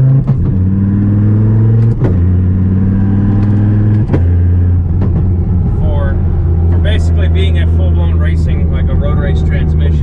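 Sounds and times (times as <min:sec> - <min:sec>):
car engine revving through gears: 0:00.0 - 0:10.0
gear shift click: 0:01.6 - 0:02.5, 0:03.1 - 0:05.4.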